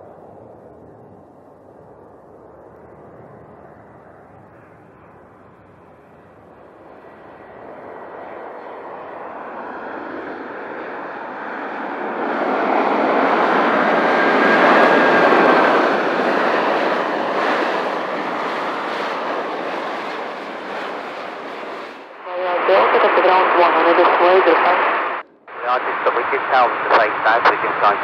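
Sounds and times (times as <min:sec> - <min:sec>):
jet airliner engine noise: 0:00.0 - 0:28.0
thin steady whine: 0:22.0 - 0:28.0.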